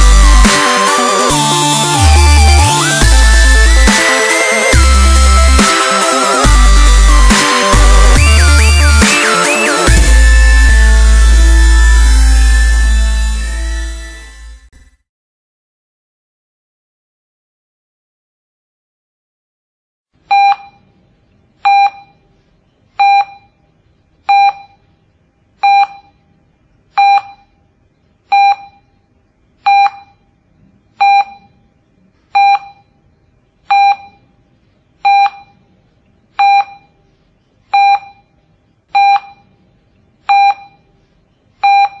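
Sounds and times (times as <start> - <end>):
short electronic beeps: 20.3 - 20.8, 40.3 - 40.8.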